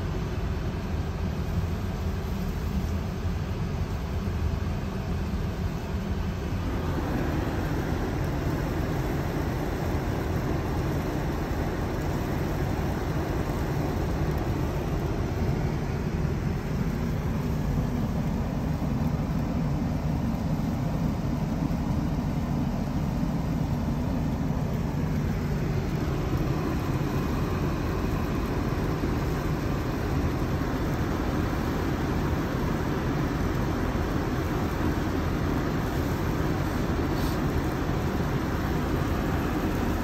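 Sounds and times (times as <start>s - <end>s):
car engine rumbling: 5.7s - 37.1s.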